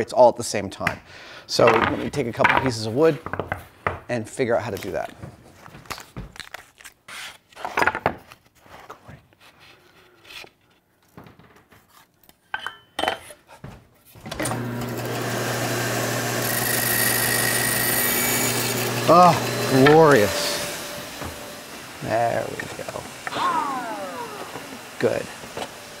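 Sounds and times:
bandsaw motor running: 14.4 - 26.0.

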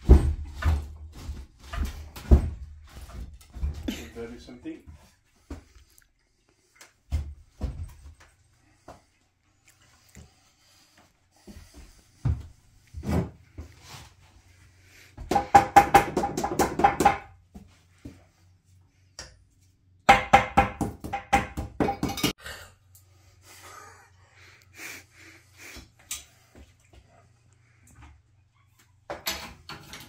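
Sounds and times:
rapid hammering: 15.3 - 17.3, 20.1 - 22.3.

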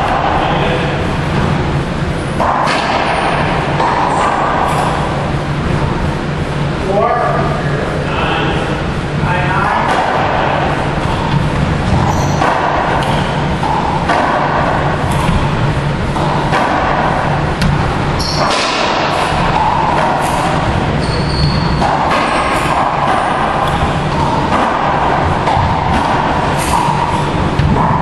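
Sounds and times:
racquetball strikes echoing: 0.0 - 7.4, 8.8 - 28.0.

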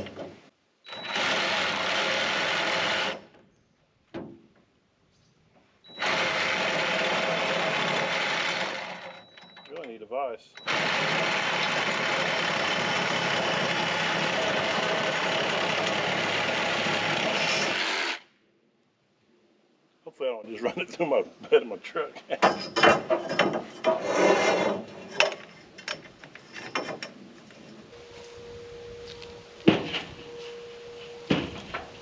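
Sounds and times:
power saw cutting: 5.9 - 9.2, 10.6 - 18.2.

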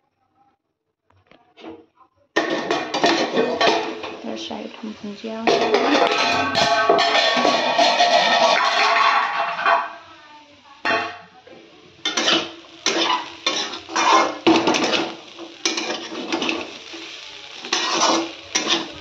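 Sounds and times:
metal spatula scraping pan: 2.4 - 4.2, 5.4 - 10.0, 12.0 - 19.0
potatoes frying: 2.4 - 19.0.

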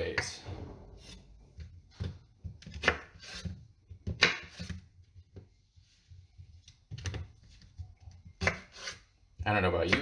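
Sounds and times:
knife slicing fruit: 1.0 - 4.9, 6.9 - 9.2.

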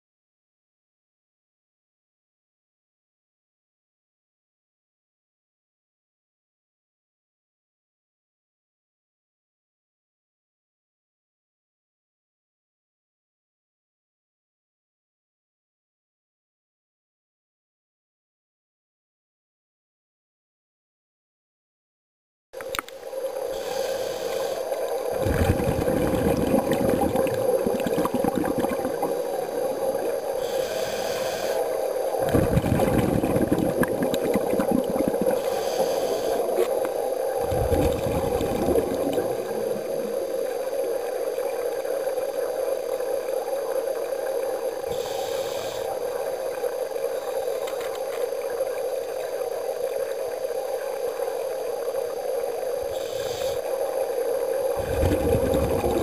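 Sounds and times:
steady hum: 22.6 - 56.0
gurgling exhaled bubbles: 23.1 - 47.7, 48.3 - 56.0
regulator inhalation hiss: 23.4 - 25.4, 29.0 - 32.3, 35.0 - 37.4, 44.3 - 49.1, 51.9 - 55.3.

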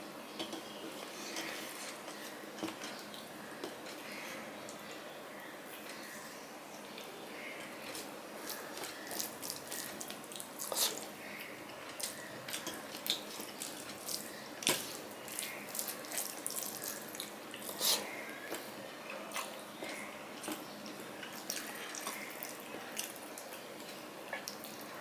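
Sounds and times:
wet crackles of puffed rice: 7.8 - 11.3, 11.9 - 25.0.

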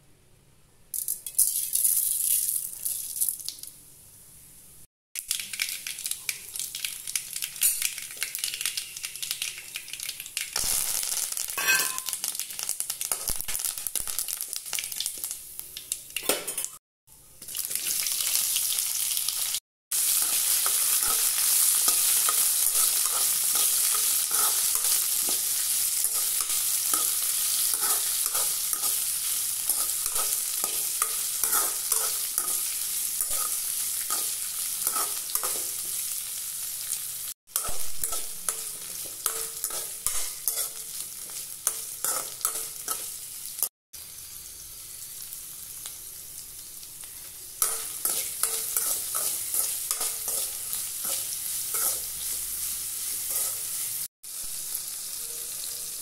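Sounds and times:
seeds crackling and popping in oil: 0.9 - 3.8, 5.2 - 16.8, 17.4 - 54.6
vegetables sizzling in oil: 1.5 - 56.0
metal spatula scraping pan: 11.6 - 12.1, 20.2 - 29.0, 29.7 - 35.8, 37.6 - 43.1, 47.6 - 52.1.

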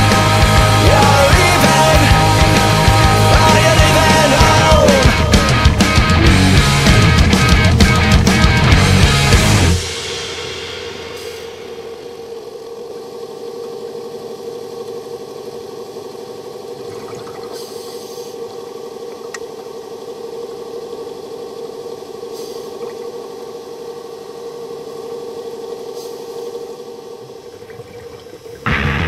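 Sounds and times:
underwater scooter motor humming: 0.0 - 29.0
brief hissing bursts: 17.5 - 18.4, 22.3 - 22.8.

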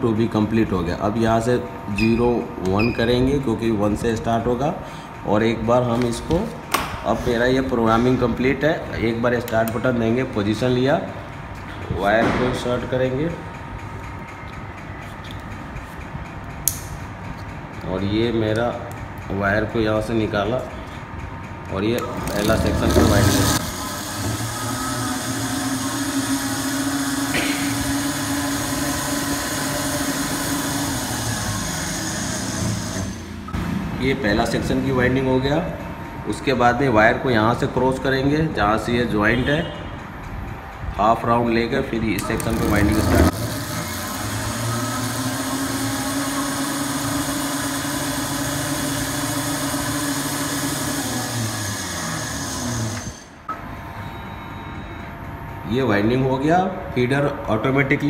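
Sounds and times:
winding machine motor humming: 13.0 - 33.6, 40.1 - 53.5.

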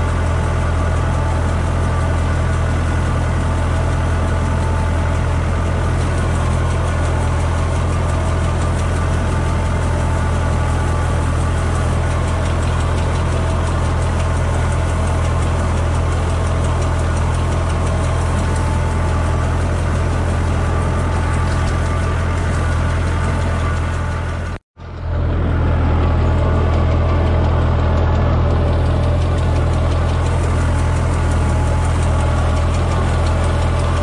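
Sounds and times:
tractor engine droning: 0.0 - 34.0.

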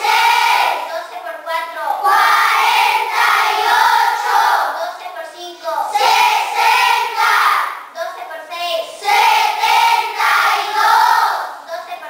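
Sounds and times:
children chanting in unison: 0.0 - 1.0, 2.0 - 4.9, 5.6 - 7.9, 8.6 - 11.7.

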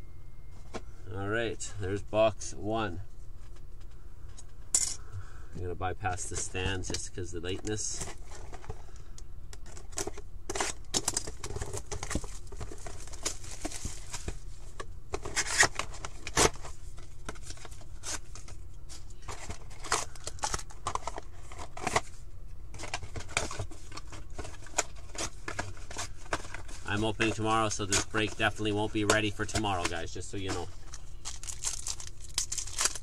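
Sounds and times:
low steady hum: 0.0 - 33.0
plastic wrap crinkling: 10.6 - 14.6, 22.8 - 33.0.

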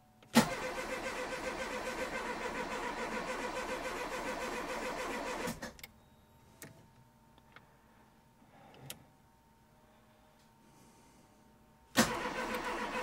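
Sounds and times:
starter motor cranking: 12.0 - 13.0.

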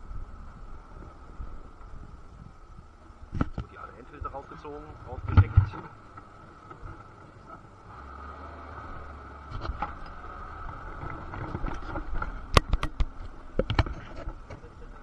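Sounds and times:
steady background hum: 0.0 - 8.1.

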